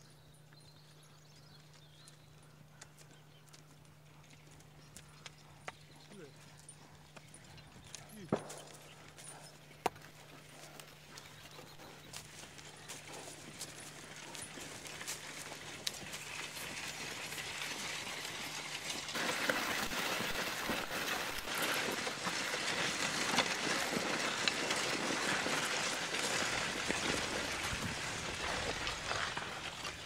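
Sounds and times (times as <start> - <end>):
plough tearing through soil: 12.1 - 30.0.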